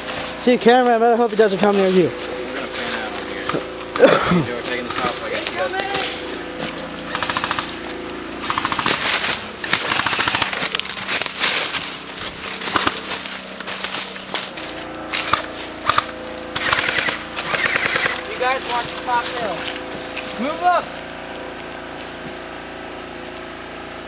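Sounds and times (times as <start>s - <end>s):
airsoft guns firing bursts: 7.1s - 7.8s, 8.4s - 10.8s, 12.6s - 13.1s, 15.2s - 18.5s.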